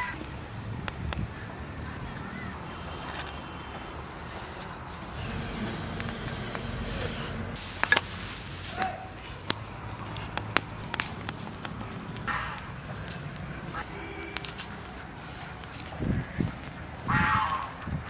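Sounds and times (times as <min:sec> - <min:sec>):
straw fire burning: 0:00.2 - 0:18.0
fire crackling and popping: 0:04.6 - 0:17.0.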